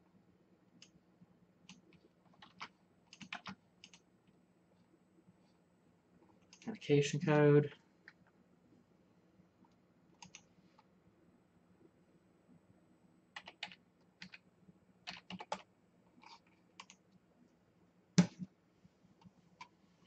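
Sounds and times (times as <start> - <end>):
keyboard typing: 1.7 - 4.0, 10.2 - 10.5, 13.4 - 14.4, 15.0 - 17.0.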